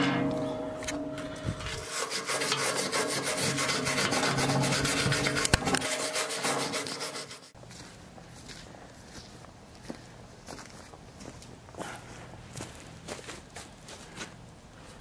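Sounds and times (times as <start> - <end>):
wire brush scrubbing steel: 0.0 - 7.6.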